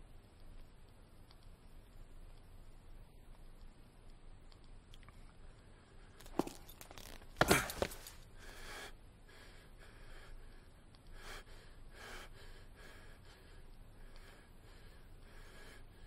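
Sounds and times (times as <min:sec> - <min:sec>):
person gasping: 0:07.4 - 0:10.4
person breathing heavily: 0:07.4 - 0:16.0.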